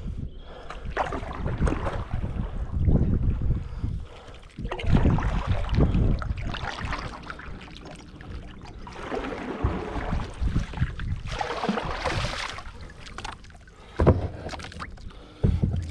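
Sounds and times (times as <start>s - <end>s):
low rumble: 1.4s - 13.1s
water trickling off paddle: 4.2s - 15.9s
kayak paddle splashing: 4.6s - 15.4s.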